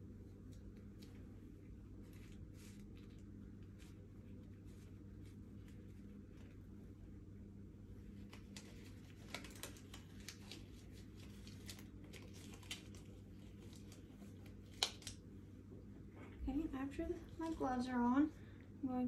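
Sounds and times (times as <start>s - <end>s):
faint steady hum: 0.0s - 19.0s
surgical gloves rustling: 0.6s - 15.2s.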